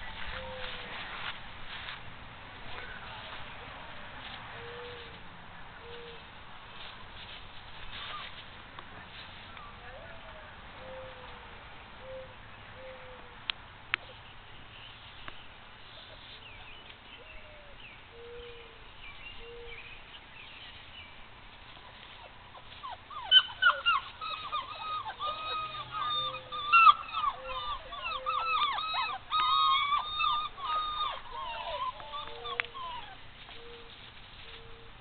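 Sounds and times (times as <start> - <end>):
puppy whining and yelping: 22.1 - 34.8.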